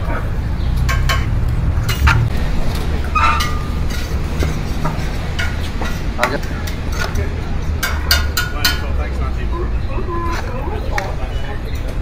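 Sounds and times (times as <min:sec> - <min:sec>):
steady low rumble: 0:00.2 - 0:07.8
steel plate scraping metal pot: 0:03.1 - 0:06.1.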